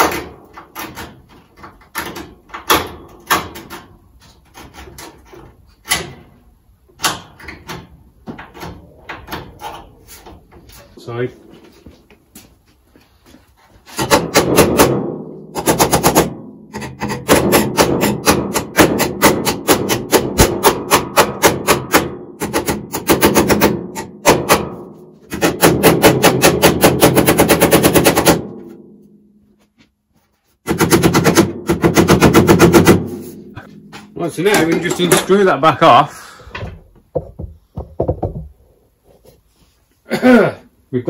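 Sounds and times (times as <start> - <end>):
hammer tapping sheet metal: 0.0 - 6.4, 13.9 - 29.1, 30.6 - 35.5.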